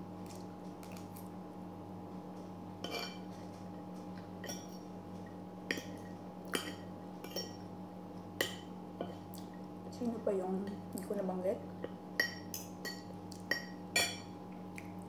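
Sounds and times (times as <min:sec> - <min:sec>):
steady low hum: 0:00.0 - 0:15.0
cutlery clinking on a plate: 0:02.8 - 0:03.3.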